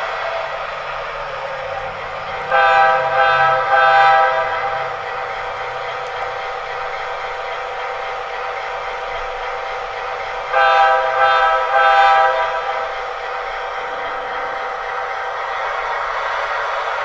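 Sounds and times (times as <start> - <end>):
model locomotive engine sound: 0.0 - 17.0
train horn blasts: 2.3 - 5.6, 10.5 - 13.0.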